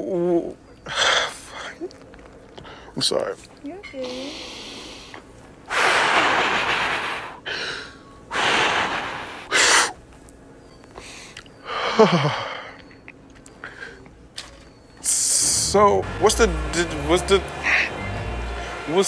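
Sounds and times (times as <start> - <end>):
man breathing heavily: 2.6 - 3.0, 4.0 - 10.0, 10.9 - 12.9, 13.6 - 14.1.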